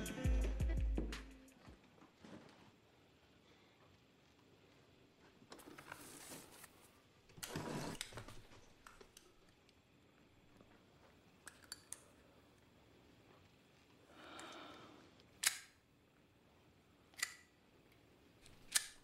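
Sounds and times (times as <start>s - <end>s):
soft rustling: 1.6s - 8.8s.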